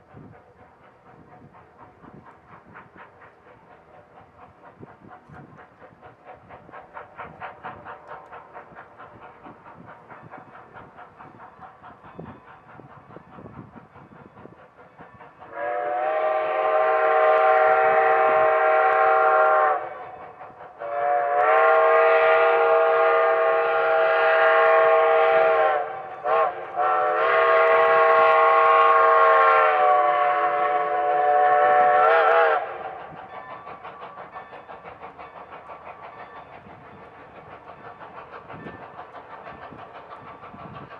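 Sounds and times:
steam locomotive exhaust chuffs: 0.0 - 40.9
steam whistle blowing: 15.4 - 20.2, 20.8 - 33.1.

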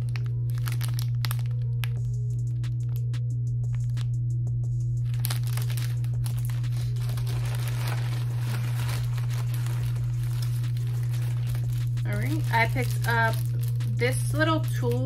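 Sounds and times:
plastic packaging crinkling: 0.0 - 2.0, 5.0 - 15.0.

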